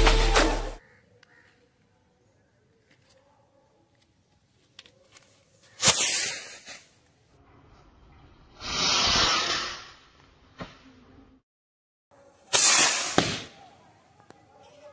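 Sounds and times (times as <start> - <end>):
firework rocket rushing hiss: 5.8 - 6.9, 8.5 - 10.1, 12.5 - 13.5.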